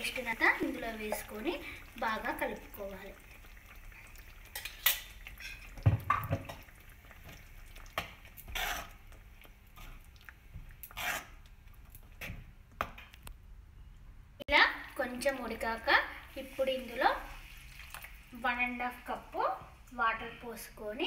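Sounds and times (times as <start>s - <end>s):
metal spoon scraping metal pan: 8.5s - 9.0s, 10.9s - 11.4s.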